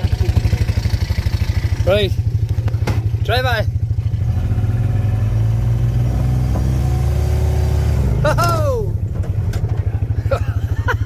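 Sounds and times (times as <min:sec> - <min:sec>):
utility vehicle engine revving: 0:00.0 - 0:11.0
person shouting: 0:08.2 - 0:09.0.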